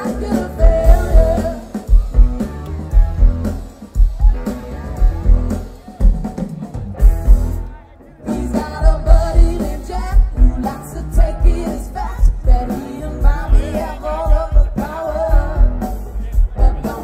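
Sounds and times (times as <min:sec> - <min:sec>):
person singing: 0:00.0 - 0:02.3, 0:08.2 - 0:17.0
steady drum beat: 0:00.0 - 0:17.0.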